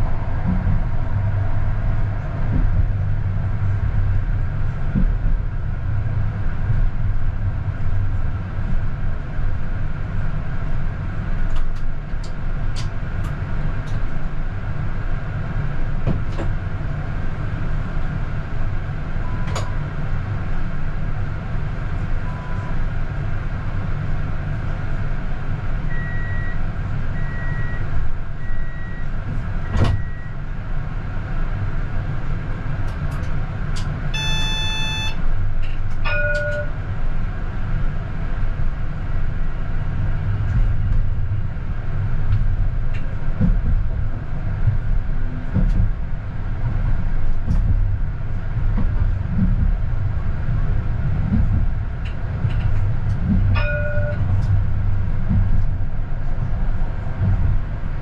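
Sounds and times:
tram rumbling on rails: 0.0 - 58.0
clear tone: 34.2 - 35.2, 36.0 - 36.8, 53.6 - 54.2
short beeps: 34.2 - 35.2, 36.1 - 36.7
short dings: 34.2 - 35.2, 36.0 - 36.8, 53.6 - 54.2.

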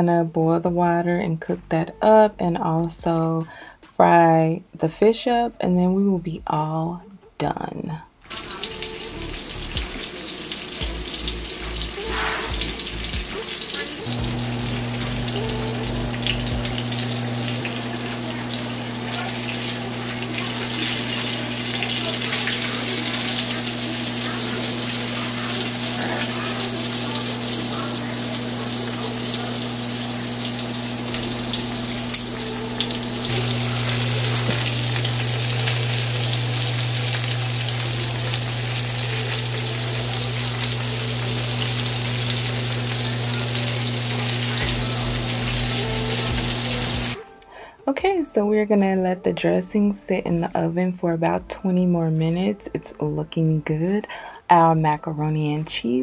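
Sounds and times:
fish frying in oil: 8.3 - 47.2.

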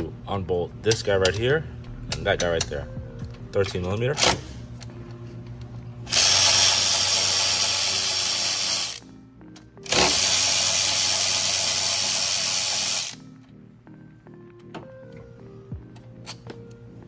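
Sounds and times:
cordless ratchet whining: 6.1 - 9.0, 9.8 - 13.2.

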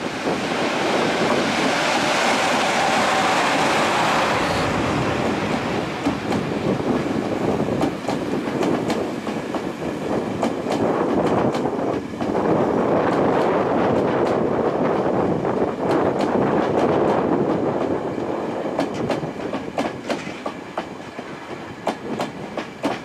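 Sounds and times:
electric locomotive running past: 0.0 - 23.0
train wheels clicking over rail joints: 4.4 - 15.1, 15.7 - 23.0.

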